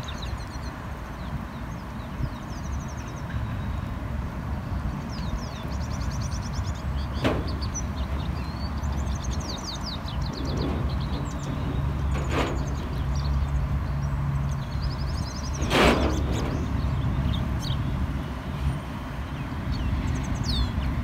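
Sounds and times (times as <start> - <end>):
steady low rumble: 7.0 - 21.0.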